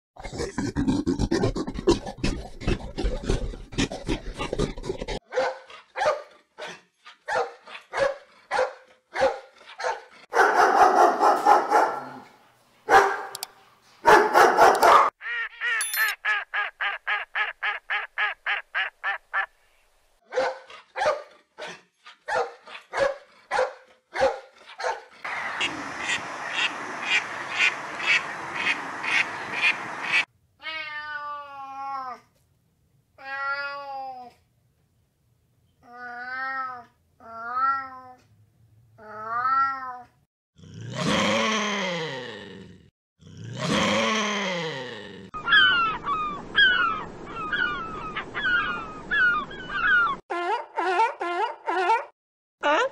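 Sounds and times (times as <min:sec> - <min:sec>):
duck quacking: 0:25.3 - 0:30.2
cat meowing: 0:30.6 - 0:32.2, 0:33.2 - 0:34.2, 0:35.9 - 0:38.2, 0:39.1 - 0:40.0.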